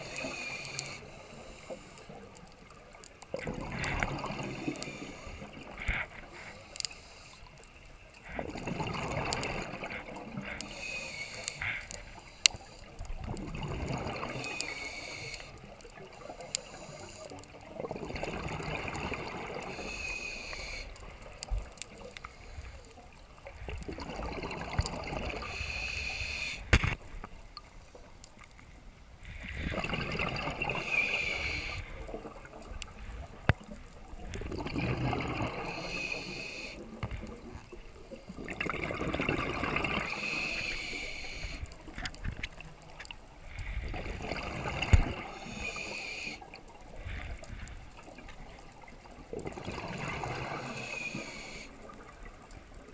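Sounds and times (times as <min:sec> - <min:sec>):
scuba regulator breaths with bubbling: 0:00.0 - 0:02.4, 0:03.3 - 0:07.6, 0:08.2 - 0:15.6, 0:16.2 - 0:22.8, 0:23.4 - 0:27.1, 0:29.2 - 0:42.6, 0:43.5 - 0:52.6.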